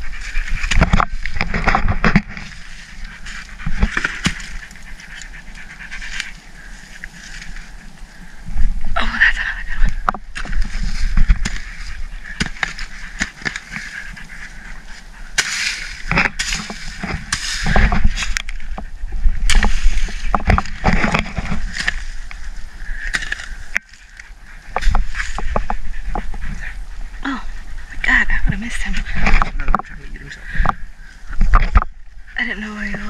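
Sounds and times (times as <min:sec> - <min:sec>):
leaves rustling: 0:00.0 - 0:33.0
hoe striking soil: 0:00.6 - 0:04.7, 0:10.3 - 0:14.0, 0:15.3 - 0:18.6, 0:19.5 - 0:22.0, 0:23.0 - 0:23.9.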